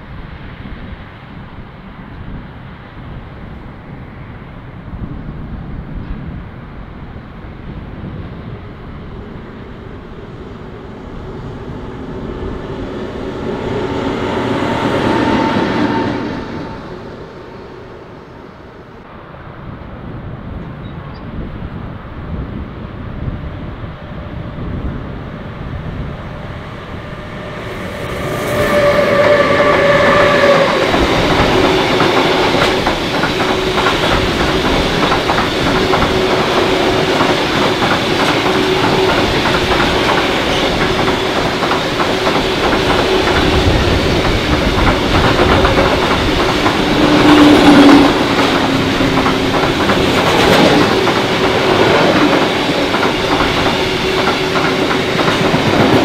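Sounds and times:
freight train passing: 0.0 - 56.0
wheels clattering on rails: 26.8 - 56.0.

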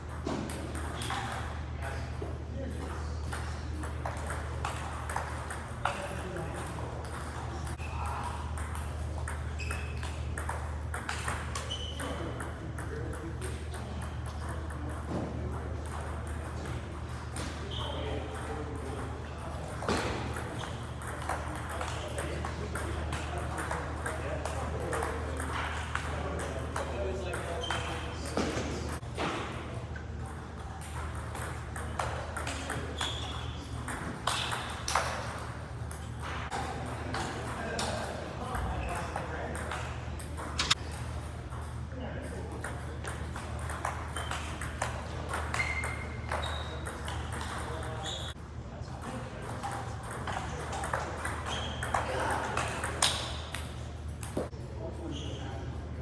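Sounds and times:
table tennis balls clicking: 2.8 - 17.5, 18.3 - 28.1, 30.2 - 41.8, 42.6 - 48.4.

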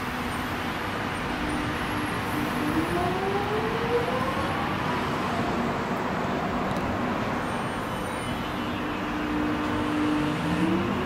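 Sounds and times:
road traffic: 0.0 - 11.0.

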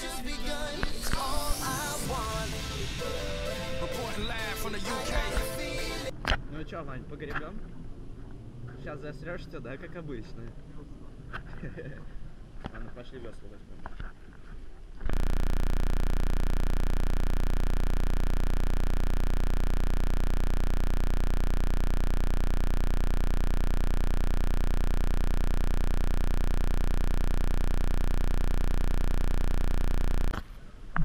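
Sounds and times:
loud electronic buzz: 15.1 - 30.4.

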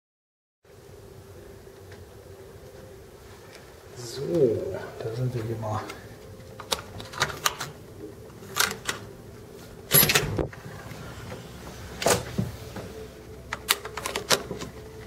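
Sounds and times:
door lock and handle clicking: 6.6 - 7.8, 9.9 - 10.4, 13.5 - 14.8.

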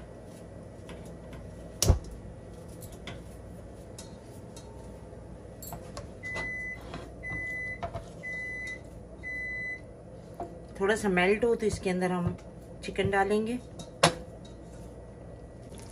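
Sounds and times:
low steady hum: 0.0 - 15.9
appliance beeping: 5.5 - 10.0.

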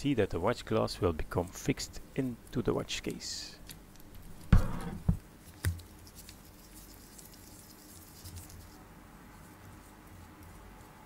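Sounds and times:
press sharp knocks: 4.5 - 5.2.

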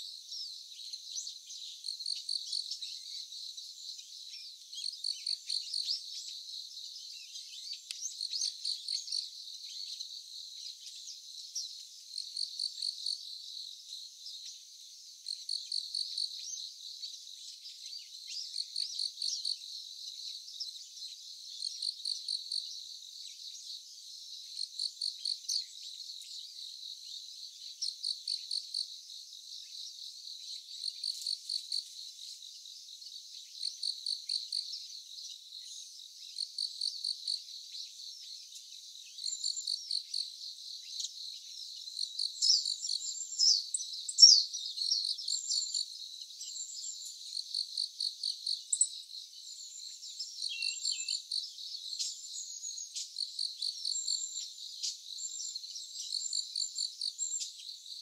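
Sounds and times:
faint insect hum: 0.0 - 58.0
insect chirping trills: 18.1 - 58.0.

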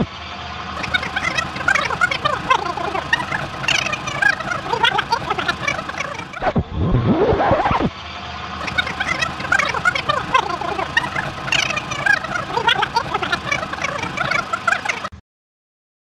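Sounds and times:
people talking and laughing: 0.8 - 6.5, 8.6 - 15.1.

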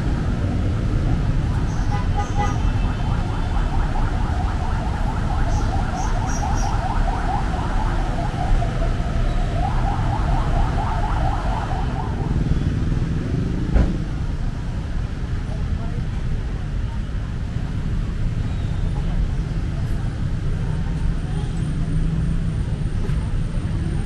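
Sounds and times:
vehicle engines rumbling: 0.0 - 24.0.

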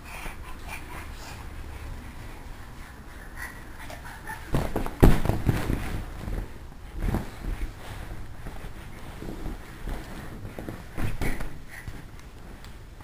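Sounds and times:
soft rustling: 0.2 - 13.0
dull thumps: 4.4 - 7.8.

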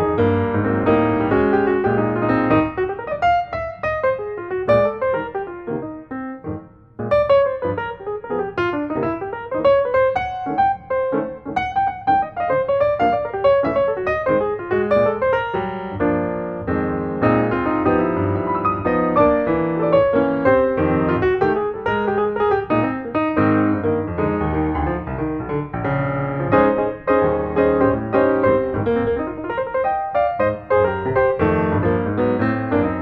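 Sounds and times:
piano music: 0.0 - 33.0.

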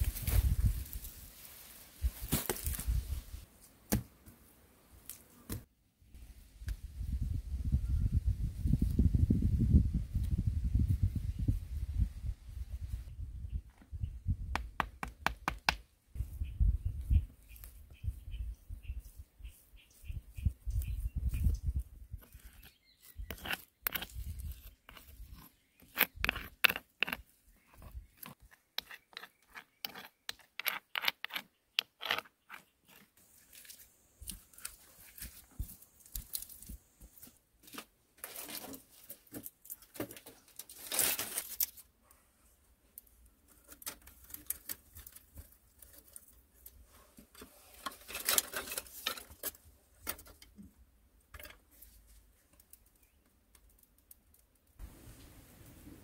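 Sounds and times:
dry sticks rustling and knocking: 20.7 - 41.9, 43.0 - 54.8
mud and stone crunching: 22.2 - 41.8.

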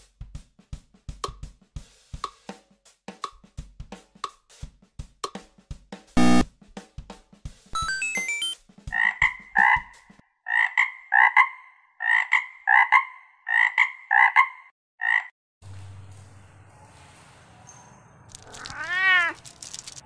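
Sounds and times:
frog croaking: 10.5 - 15.3.

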